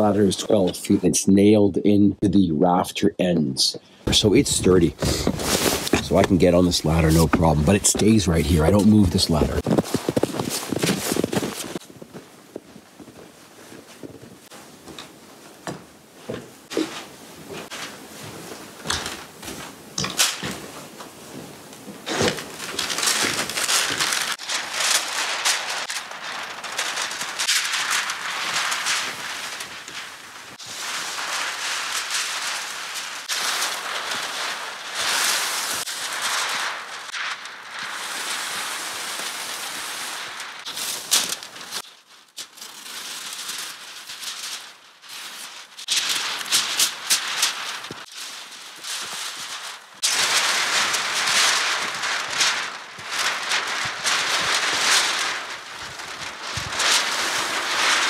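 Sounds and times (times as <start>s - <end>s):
plastic sheeting crinkling: 0.0s - 0.9s, 4.0s - 58.0s.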